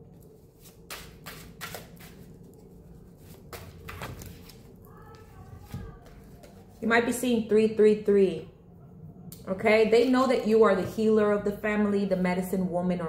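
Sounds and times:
cards flicking and slapping: 0:00.6 - 0:02.2.

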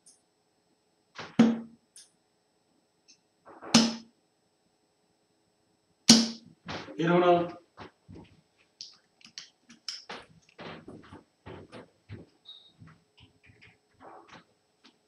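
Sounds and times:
darts thudding into dartboard: 0:01.2 - 0:01.8, 0:03.6 - 0:04.1, 0:06.1 - 0:06.9.

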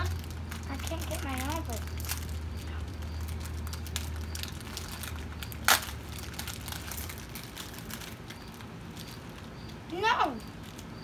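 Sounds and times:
plastic packaging crinkling: 0:00.0 - 0:11.0
loud sharp plastic rip: 0:05.0 - 0:07.9.

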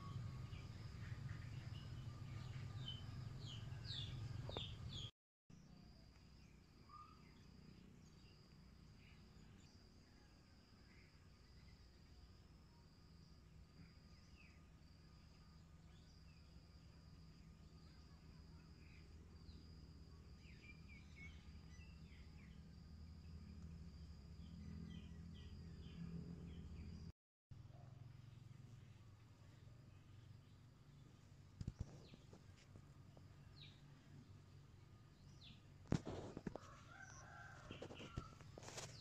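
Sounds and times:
faint bird chirps: 0:00.0 - 0:13.0, 0:33.2 - 0:39.0.

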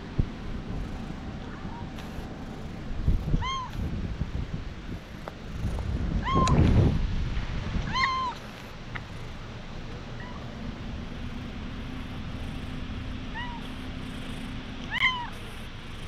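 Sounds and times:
hand stroking fur: 0:01.8 - 0:03.9
cat meowing: 0:03.3 - 0:03.8, 0:06.2 - 0:06.6, 0:07.9 - 0:08.4, 0:13.3 - 0:13.7, 0:14.9 - 0:15.4.

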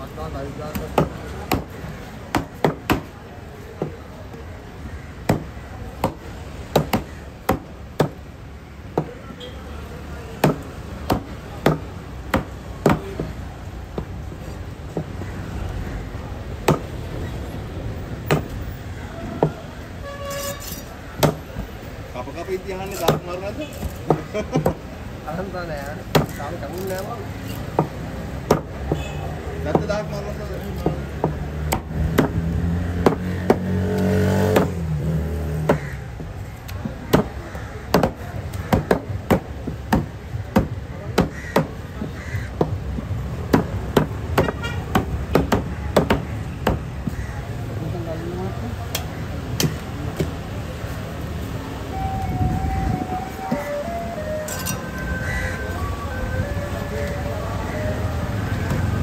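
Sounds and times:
knife chopping on wooden block: 0:10.4 - 0:14.1, 0:22.9 - 0:24.8, 0:26.1 - 0:26.9, 0:27.6 - 0:29.0, 0:30.7 - 0:34.8, 0:37.1 - 0:41.8, 0:43.5 - 0:47.2.

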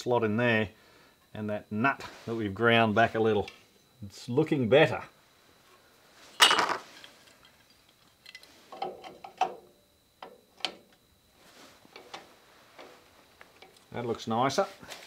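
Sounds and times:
metallic clicks and clinks of tools: 0:07.0 - 0:09.5.

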